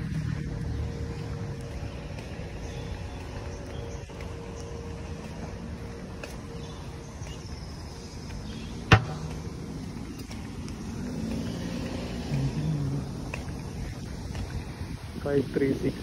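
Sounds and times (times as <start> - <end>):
footsteps on pavement: 0.0 - 16.0
road traffic rumble: 0.0 - 16.0
sharp knock: 8.9 - 9.3.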